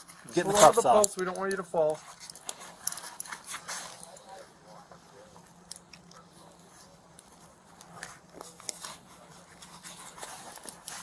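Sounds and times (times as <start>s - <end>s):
handcuffs metal clicks and rattles: 2.2s - 3.4s.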